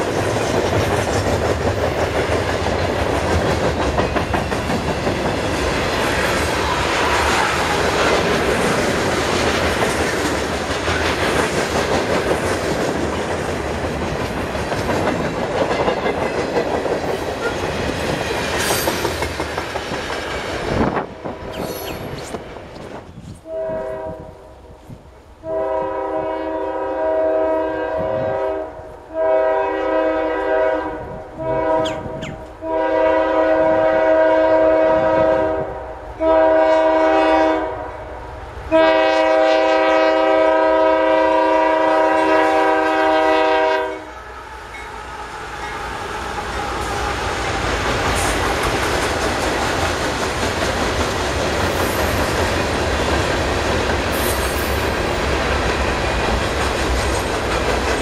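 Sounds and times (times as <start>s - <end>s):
train wheels clattering: 0.0s - 23.2s, 45.7s - 58.0s
locomotive air horn blasts: 23.4s - 24.5s, 25.4s - 38.1s, 38.7s - 44.9s.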